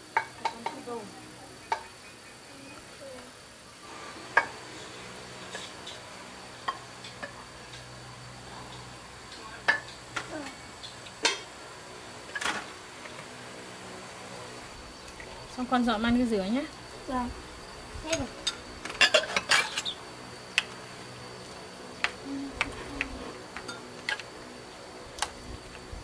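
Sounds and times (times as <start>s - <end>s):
faint insect chirring: 0.0s - 26.0s.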